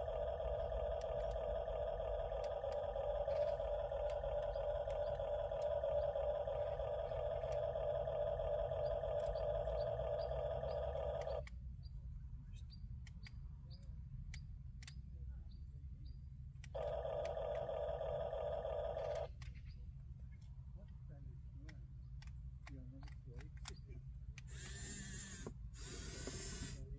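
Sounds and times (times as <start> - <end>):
toy electric motors whining: 0.0 - 11.5, 16.8 - 19.3, 24.4 - 26.9.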